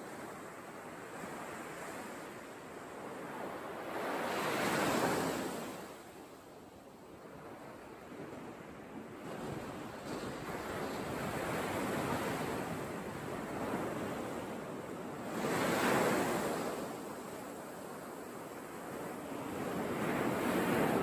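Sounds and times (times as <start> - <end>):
wind on microphone: 7.3 - 21.0.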